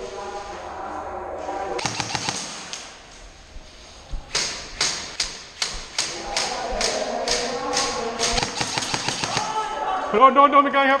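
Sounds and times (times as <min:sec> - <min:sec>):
footsteps on concrete floor: 0:01.8 - 0:08.5.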